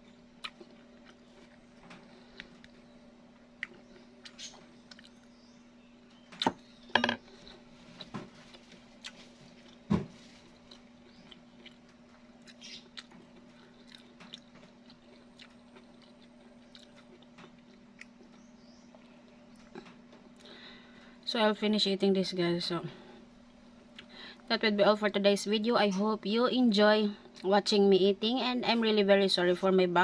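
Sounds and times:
chewing crunchy fried food: 0.0s - 5.4s, 7.2s - 20.8s
faint steady hum: 0.0s - 30.0s.

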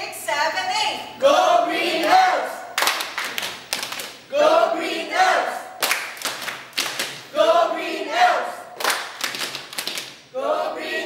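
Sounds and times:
group chanting a cheer: 1.2s - 3.0s, 4.3s - 6.0s, 7.3s - 9.0s, 10.3s - 11.0s
hand claps: 2.8s - 4.2s, 5.8s - 7.3s, 8.8s - 10.2s.

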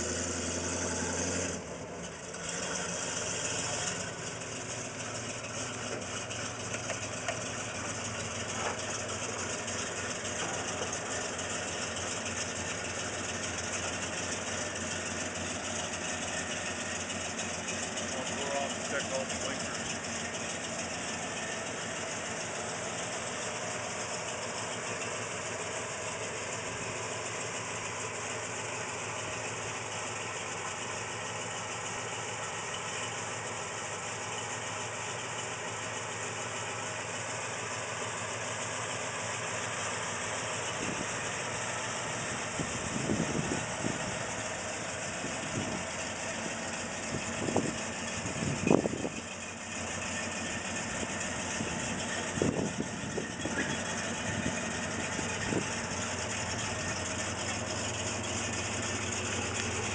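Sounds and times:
engine revving bursts: 0.0s - 1.8s
car engine idling: 0.0s - 59.9s.

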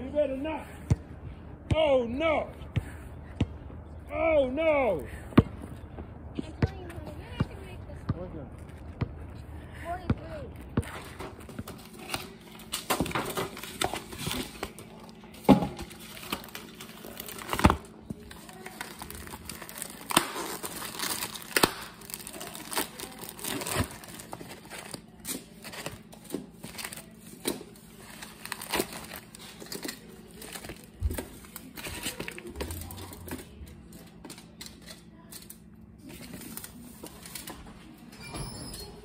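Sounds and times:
foil and plastic crinkling: 11.6s - 37.7s.

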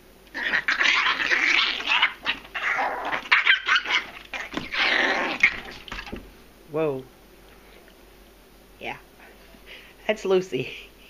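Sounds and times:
small dog barking aggressively: 0.4s - 5.9s.

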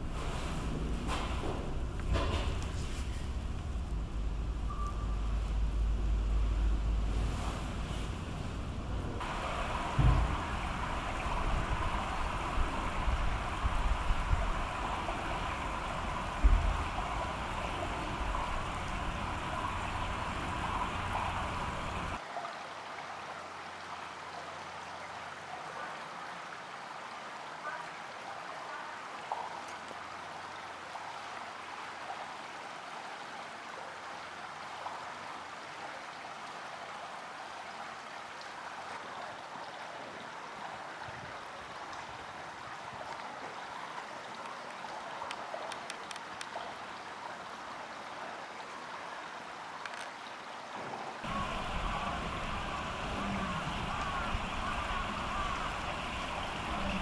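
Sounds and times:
running water: 0.0s - 57.0s
faint clicks: 44.4s - 46.6s.

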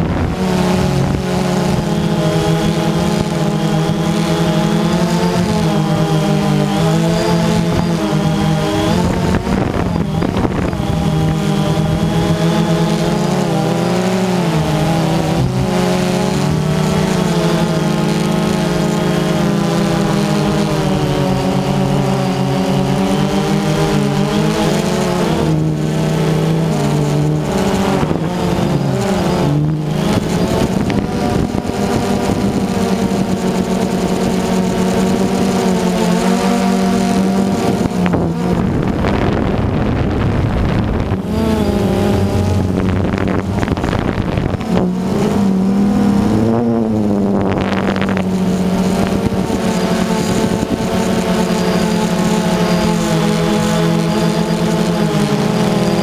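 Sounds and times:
drone propellers whining: 0.0s - 56.0s
wind rushing: 7.6s - 12.4s, 37.4s - 49.6s.

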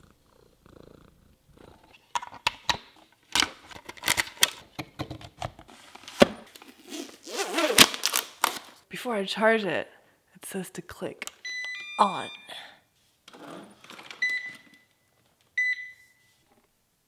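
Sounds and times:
cat purring: 0.0s - 2.1s.

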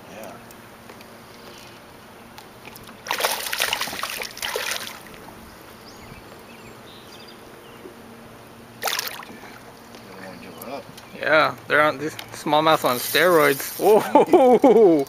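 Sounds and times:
fish splashing in water: 2.7s - 5.2s, 8.8s - 9.6s.

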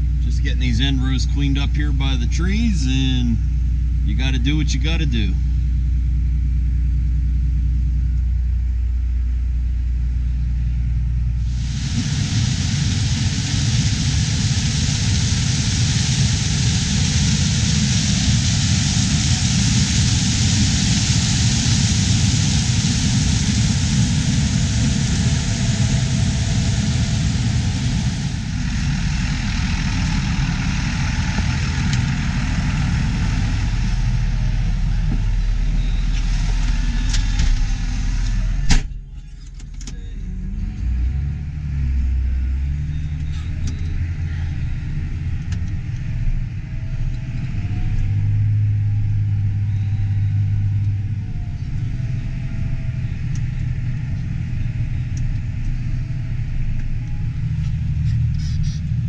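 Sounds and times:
tractor engine hum: 0.0s - 59.0s
combine harvester rushing noise: 11.4s - 39.0s.

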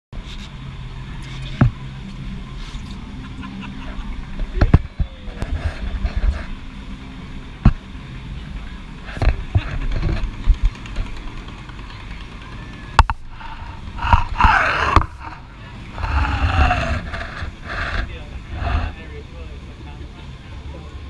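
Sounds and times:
wind rumble on microphone: 3.8s - 19.1s
water rushing: 13.1s - 19.0s.

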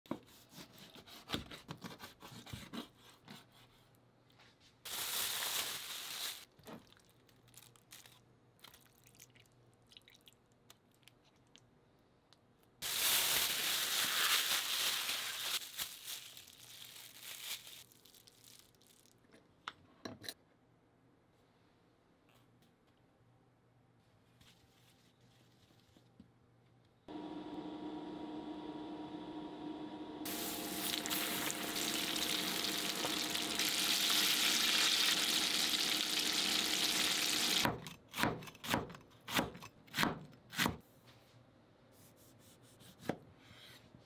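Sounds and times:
plastic bag crinkling: 4.9s - 9.0s, 12.8s - 19.2s.

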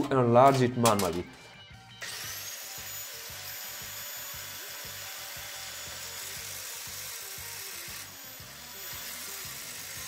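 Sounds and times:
cutting disc grinding sheet steel: 2.0s - 10.0s.

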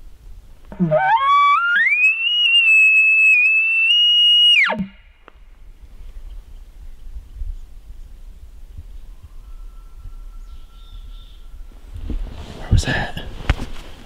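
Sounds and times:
elk bugling: 0.7s - 5.0s.

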